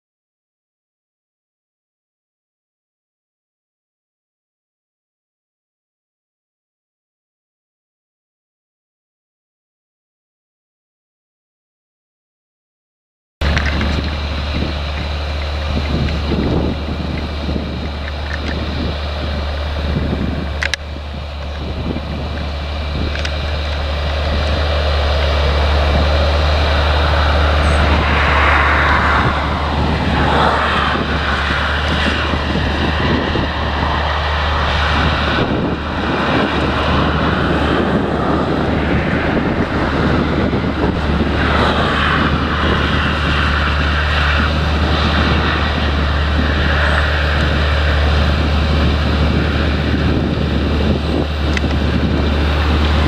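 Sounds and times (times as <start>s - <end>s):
tractor diesel engine under load: 13.4s - 53.0s.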